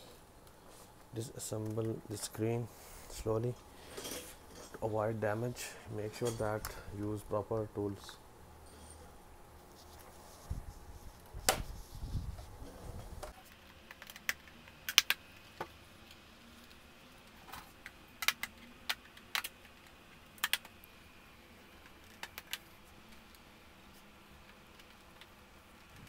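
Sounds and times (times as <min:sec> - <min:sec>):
sharp plastic clicks: 0:13.5 - 0:15.3, 0:18.2 - 0:20.8.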